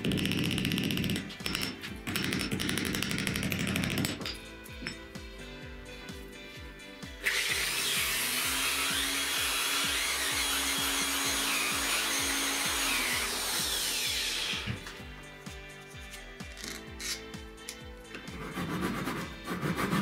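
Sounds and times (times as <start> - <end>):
background music with beat: 0.0 - 20.0
electric drill motor whine: 7.2 - 15.0
sandpaper hissing on wood: 18.4 - 20.0.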